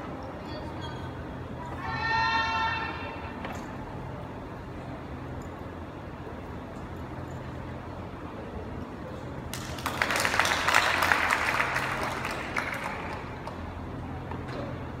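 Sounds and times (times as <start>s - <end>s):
spectators clapping: 9.5s - 13.8s.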